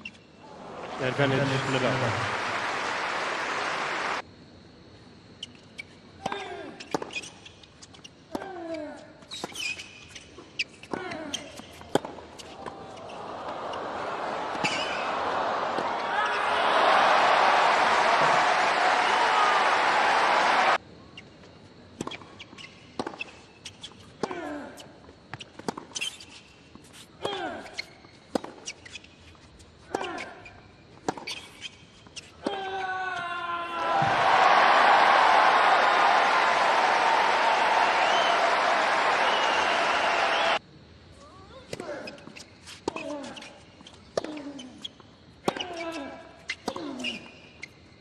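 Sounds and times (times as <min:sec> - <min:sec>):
stadium crowd applause: 0:00.5 - 0:04.2, 0:13.1 - 0:20.8, 0:33.8 - 0:40.6
tennis ball bouncing: 0:10.8 - 0:13.1, 0:34.0 - 0:34.2.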